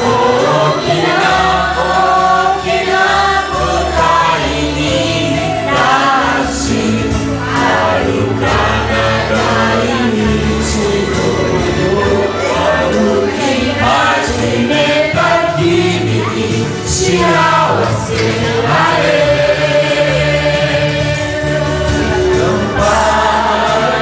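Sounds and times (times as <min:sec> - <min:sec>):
group singing along: 0:00.0 - 0:24.0.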